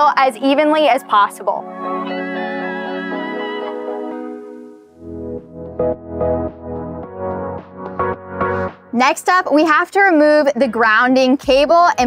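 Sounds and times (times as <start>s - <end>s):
sustained keyboard chords: 0.0s - 9.1s.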